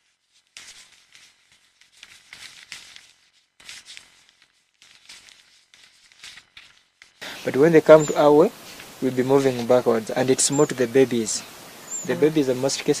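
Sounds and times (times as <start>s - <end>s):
soft outdoor hiss: 0.0s - 13.0s
faint high chirps: 7.2s - 8.5s, 9.1s - 13.0s.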